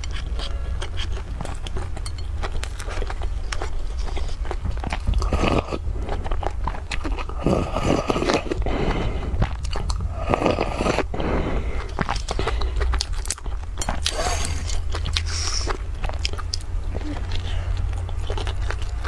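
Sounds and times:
wet chewing: 0.0 - 19.0
slurping soup: 3.9 - 15.9.

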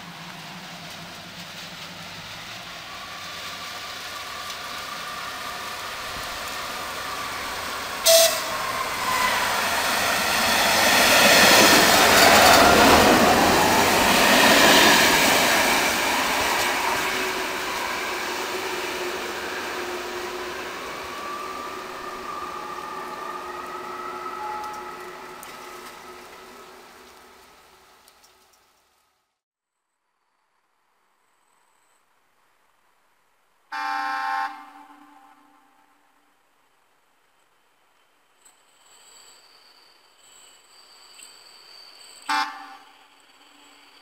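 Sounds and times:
train engine and wheels passing: 0.0 - 29.2, 34.2 - 44.0
train horn toot: 8.0 - 10.5, 16.0 - 27.7, 33.7 - 36.2, 42.2 - 44.0.

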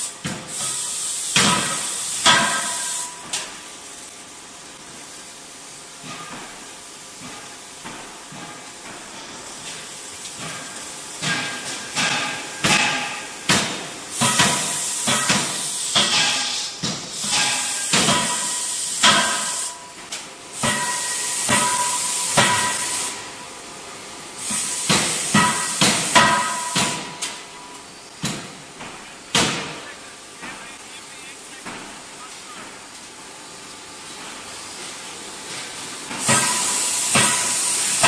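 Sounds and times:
hydraulic hiss: 0.0 - 4.0, 10.4 - 19.8, 20.5 - 23.4, 24.4 - 30.0, 34.3 - 38.0.

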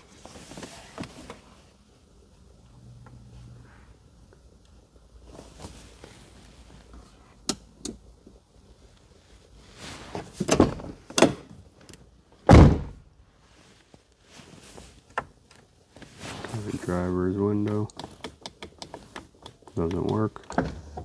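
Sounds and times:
car door shutting with thunk: 12.5 - 13.0.

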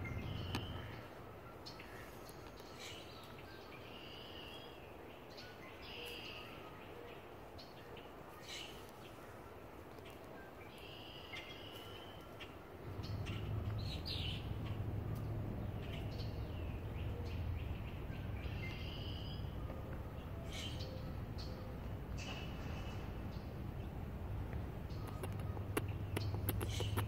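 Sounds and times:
low steady rumble: 0.0 - 1.2, 12.8 - 27.0
songbirds chirping and trilling: 0.0 - 27.0.

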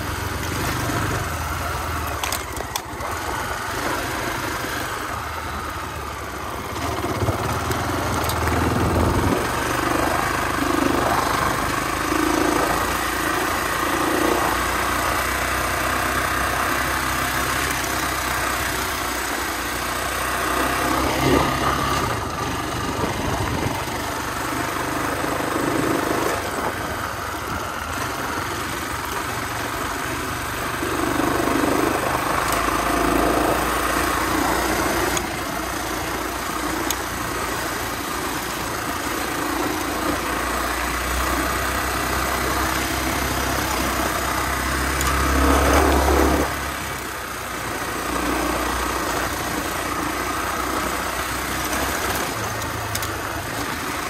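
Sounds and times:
dirt bike engine revving: 6.6 - 17.7, 19.9 - 23.8, 30.7 - 47.0.

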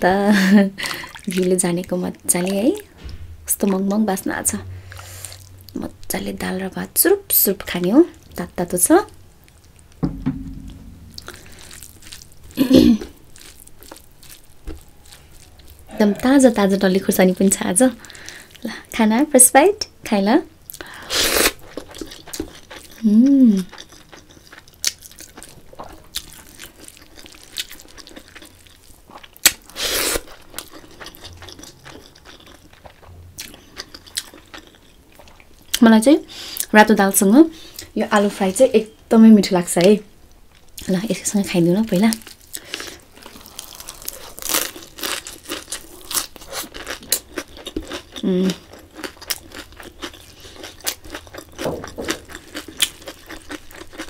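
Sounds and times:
chewing with crunchy bites: 11.3 - 18.8, 20.7 - 36.7, 41.9 - 54.0
throat clearing: 12.6 - 13.1
woman humming: 12.6 - 13.1, 23.0 - 23.6.

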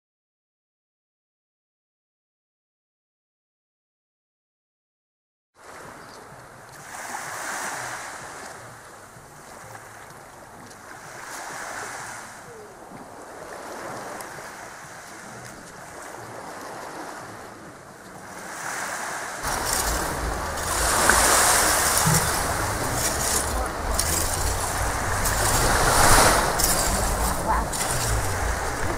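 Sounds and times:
sea waves washing on shore: 5.6 - 28.9
wind buffeting microphone: 19.4 - 28.9.

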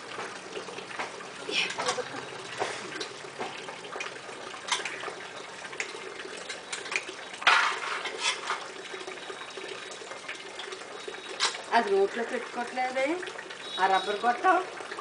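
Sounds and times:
small splashes and knocks: 0.0 - 8.9, 11.3 - 11.8
water trickling from hose into bucket: 0.0 - 15.0.

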